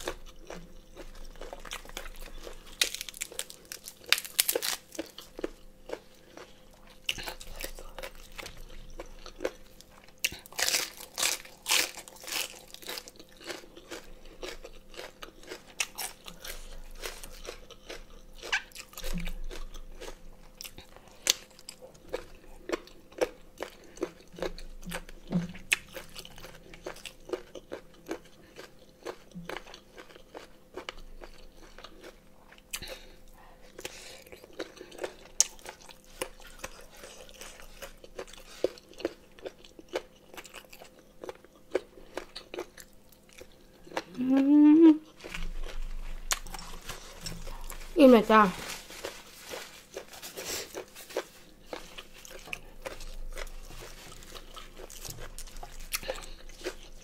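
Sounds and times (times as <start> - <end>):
crunchy chewing of raw cabbage: 0.0 - 57.0.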